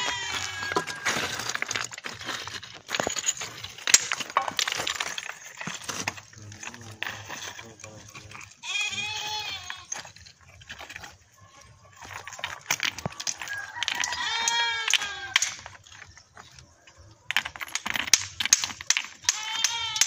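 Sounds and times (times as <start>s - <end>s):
goat bleating: 0.0s - 0.7s, 8.5s - 10.0s, 19.3s - 20.0s.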